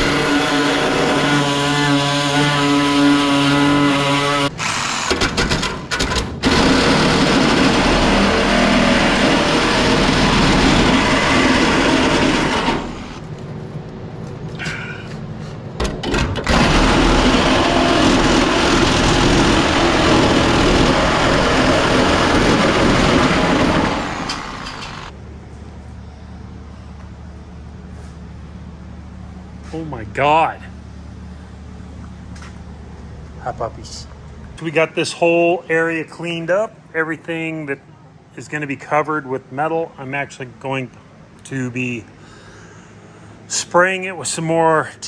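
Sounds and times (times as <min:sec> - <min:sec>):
reciprocating saw cutting sheet steel: 0:00.0 - 0:05.2, 0:06.4 - 0:13.2, 0:16.5 - 0:25.1.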